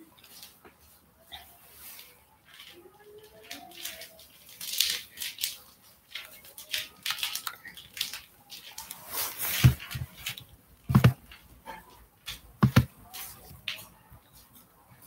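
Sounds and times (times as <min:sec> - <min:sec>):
fabric rustling on microphone: 0:08.6 - 0:11.4, 0:12.5 - 0:14.6.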